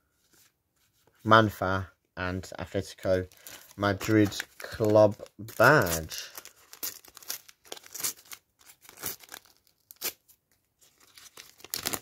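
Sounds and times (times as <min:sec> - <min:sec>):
wrapper tearing and crinkling: 0:03.3 - 0:12.0.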